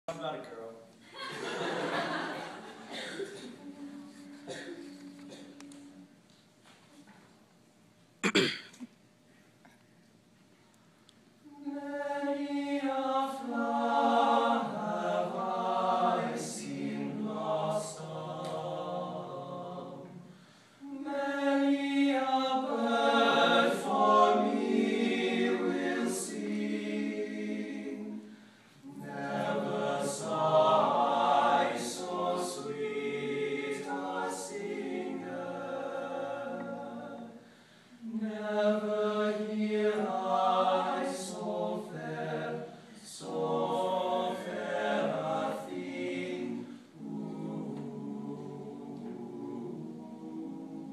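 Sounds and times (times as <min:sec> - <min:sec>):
men singing a cappella harmony: 0:11.5 - 0:50.9.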